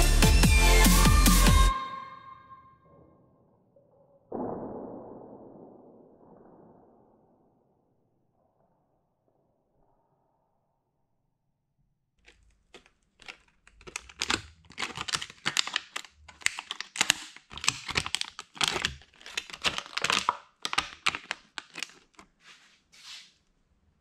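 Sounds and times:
plastic bottle crinkling and crackling: 0:12.2 - 0:22.6.

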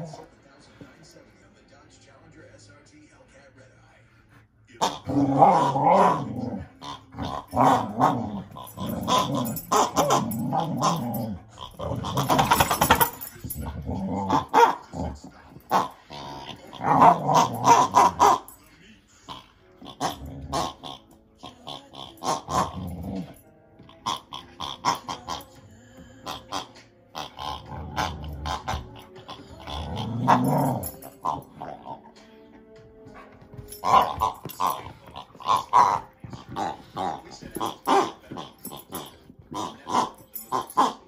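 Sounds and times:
dog play-growling: 0:00.0 - 0:01.4, 0:04.1 - 0:41.0
dog chewing rubber toy: 0:15.7 - 0:18.4, 0:23.9 - 0:25.4, 0:33.1 - 0:41.0.

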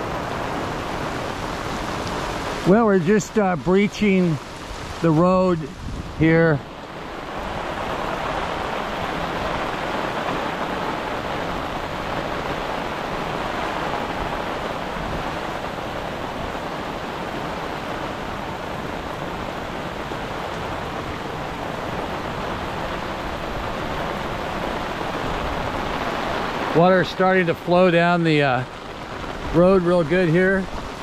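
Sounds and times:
muddy water rushing: 0:00.0 - 0:31.0.

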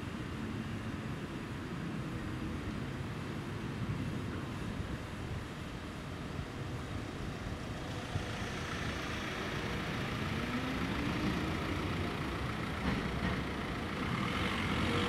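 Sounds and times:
electric tram running past: 0:00.0 - 0:15.0
cars idling: 0:07.2 - 0:15.0.

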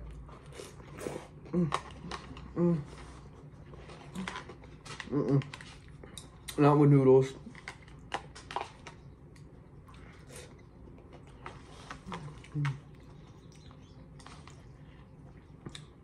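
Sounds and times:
person chewing food: 0:07.4 - 0:16.0.

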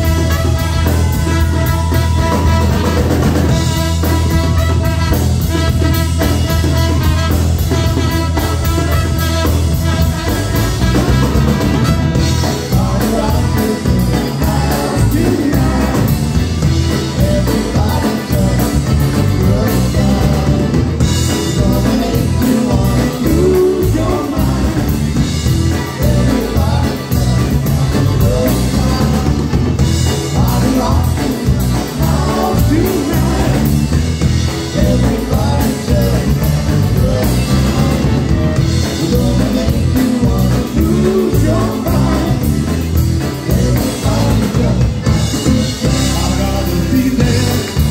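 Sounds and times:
trumpets: 0:00.0 - 0:12.7
drum kit steady beat: 0:00.0 - 0:47.9
sung vocals: 0:10.9 - 0:47.9.

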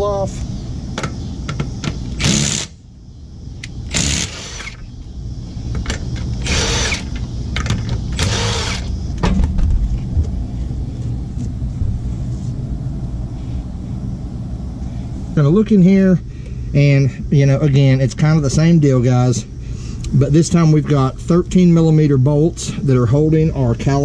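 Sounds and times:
steady low rumble: 0:00.0 - 0:24.0
impact wrench bursts: 0:02.1 - 0:02.8, 0:03.8 - 0:04.9, 0:05.9 - 0:08.9.

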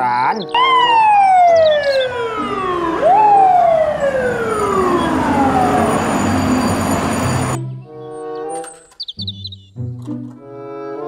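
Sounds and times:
street noise: 0:00.0 - 0:09.1
fire truck siren wailing: 0:00.5 - 0:07.6.

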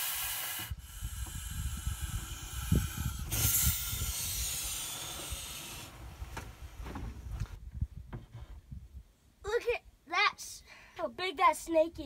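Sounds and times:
snake hissing: 0:00.0 - 0:06.0.

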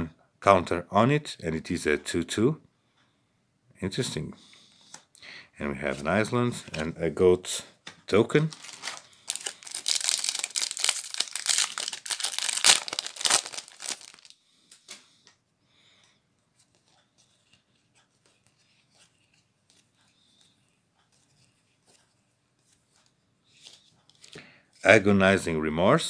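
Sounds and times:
soft clicks of cards sorted: 0:05.8 - 0:07.0, 0:16.0 - 0:25.0
foil wrapper crinkling and tearing: 0:08.4 - 0:14.4.

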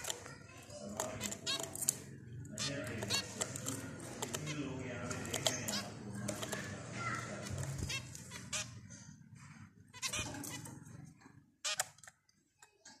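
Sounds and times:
finches beeping calls: 0:02.5 - 0:08.9, 0:09.9 - 0:10.7.

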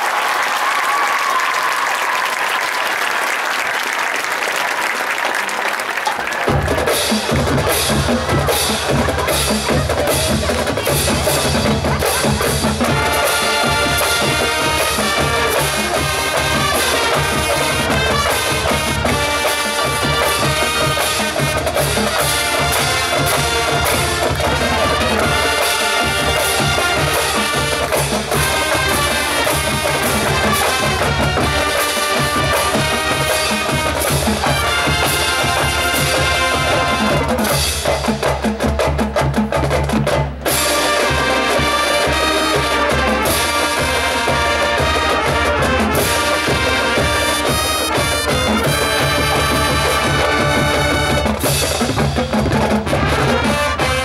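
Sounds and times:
crowd applause: 0:00.0 - 0:37.8
snare and bass drums: 0:06.4 - 0:54.0
brass playing: 0:10.9 - 0:37.6, 0:40.5 - 0:51.9, 0:52.8 - 0:54.0.

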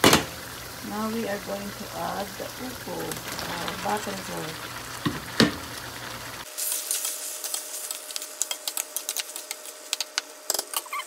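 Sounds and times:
food sizzling in a wok: 0:00.0 - 0:11.0.

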